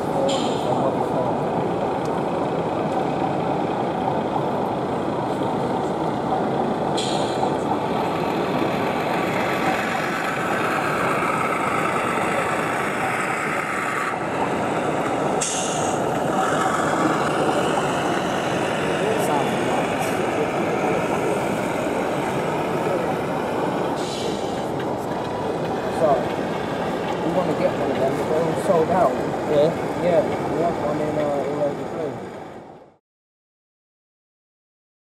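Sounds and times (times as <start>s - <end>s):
busy exhibition hall noise: 0.0s - 32.3s
model train running: 0.0s - 33.0s
short hisses: 15.4s - 16.0s, 24.0s - 24.6s.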